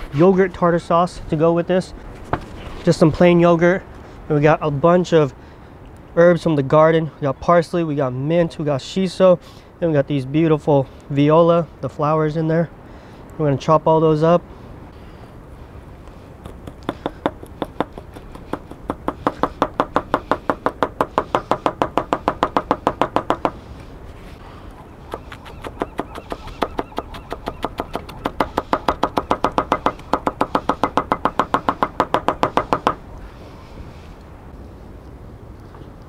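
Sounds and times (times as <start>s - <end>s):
knife chopping on wooden board: 27.3s - 33.0s.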